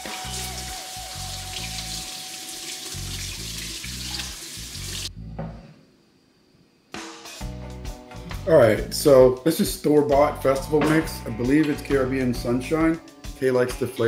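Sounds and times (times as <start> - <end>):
background music with steady beat: 0.0 - 3.2, 6.9 - 14.0.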